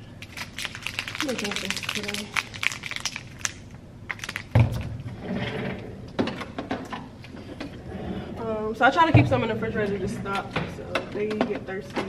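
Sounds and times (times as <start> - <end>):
plastic bottles clicking and crinkling: 0.2 - 4.9.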